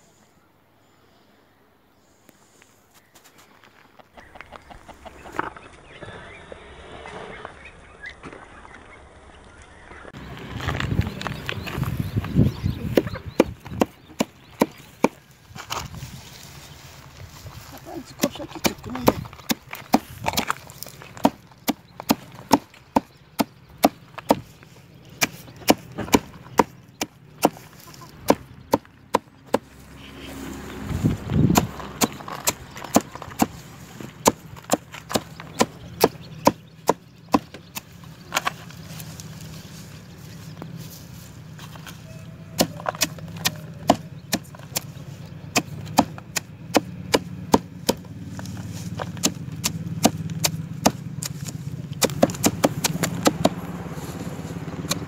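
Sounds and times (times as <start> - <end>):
hatchet chopping greens on wood: 12.9 - 15.2, 18.2 - 24.5, 25.2 - 29.7, 31.4 - 33.6, 34.2 - 38.6, 42.6 - 48.2, 49.0 - 53.7, 54.8 - 55.0.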